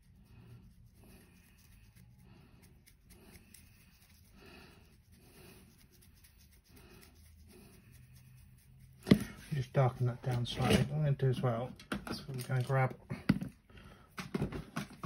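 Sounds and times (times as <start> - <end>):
dry brush scratching: 0.0 - 11.0.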